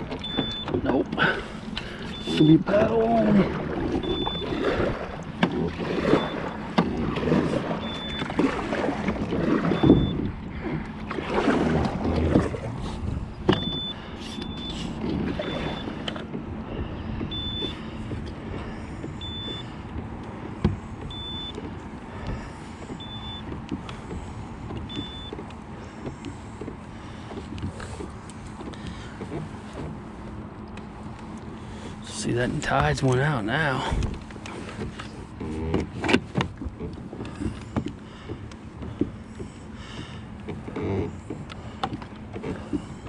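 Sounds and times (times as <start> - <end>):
kayak water and handling noise: 0.0 - 43.0.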